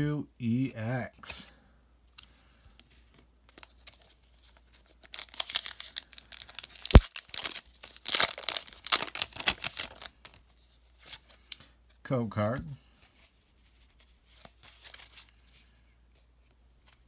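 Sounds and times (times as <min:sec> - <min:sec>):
foil wrapper tearing and crinkling: 0:04.7 - 0:10.4.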